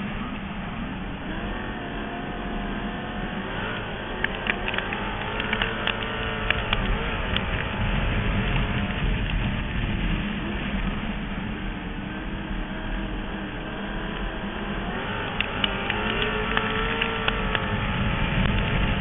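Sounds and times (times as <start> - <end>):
racing car engine revving: 0.0 - 19.0
wind buffeting microphone: 0.0 - 19.0
sharp clicks and knocks: 3.7 - 7.8, 15.3 - 17.7.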